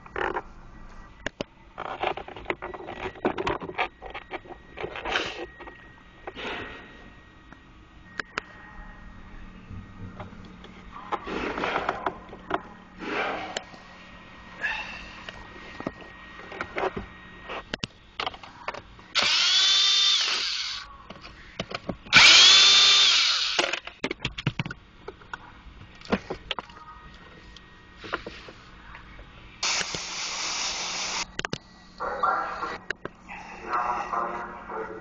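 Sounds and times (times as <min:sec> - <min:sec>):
cordless screwdriver whirring: 0:19.2 - 0:20.8, 0:22.1 - 0:23.7.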